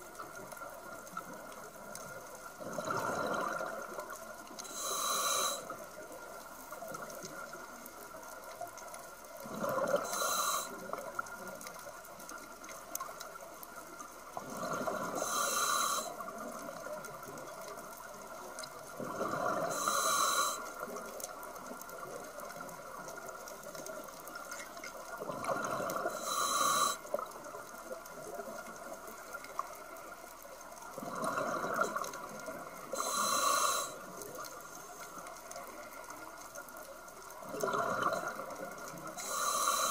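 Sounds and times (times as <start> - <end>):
diver breathing through regulator: 4.6 - 5.7, 9.7 - 10.9, 14.6 - 16.2, 19.2 - 20.7, 25.5 - 27.1, 32.9 - 34.1, 39.2 - 39.9.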